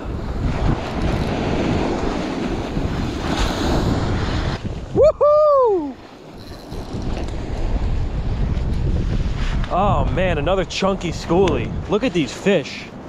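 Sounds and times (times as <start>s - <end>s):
breaking surf: 0.0s - 13.0s
wind buffeting microphone: 0.0s - 13.0s
whooping shout: 4.9s - 6.0s.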